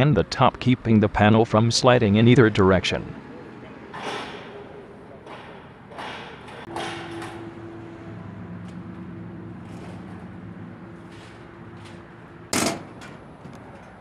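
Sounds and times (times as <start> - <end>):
bang on metal roofing: 3.9 - 4.6, 5.3 - 7.4, 12.5 - 13.3.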